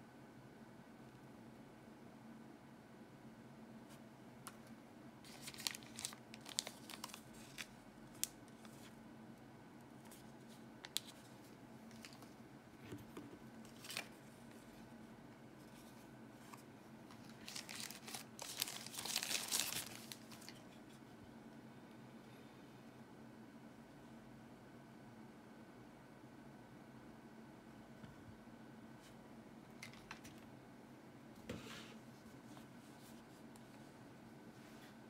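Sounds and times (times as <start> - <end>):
wrapping crinkling: 5.2 - 8.9, 17.1 - 20.6.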